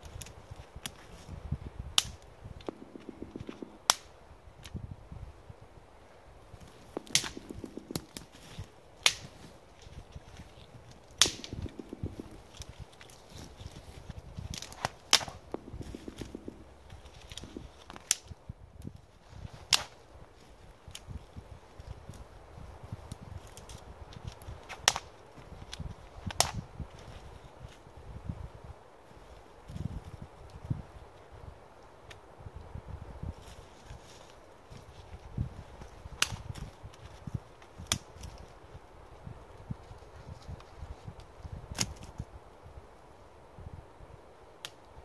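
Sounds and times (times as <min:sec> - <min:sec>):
dry branches snapping: 0:00.0 - 0:04.8, 0:06.5 - 0:28.2, 0:33.3 - 0:42.3, 0:44.6 - 0:45.0
twigs rustling and crunching: 0:00.0 - 0:04.9, 0:06.0 - 0:42.4.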